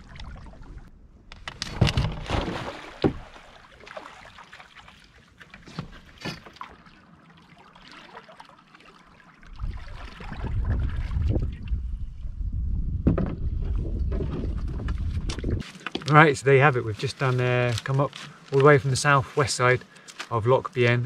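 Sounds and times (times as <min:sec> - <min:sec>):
water lapping against hull: 0:00.0 - 0:00.9, 0:02.0 - 0:12.3, 0:13.5 - 0:15.6
paddle splashing in water: 0:01.7 - 0:11.6.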